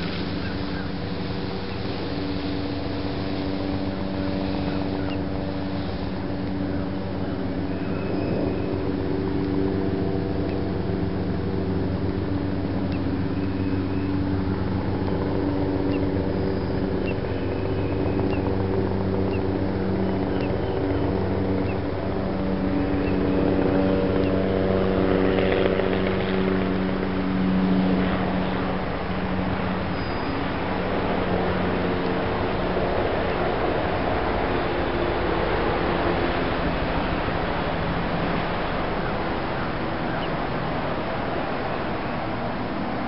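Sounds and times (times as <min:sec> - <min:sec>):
motor running with low hum: 0:00.0 - 0:43.0.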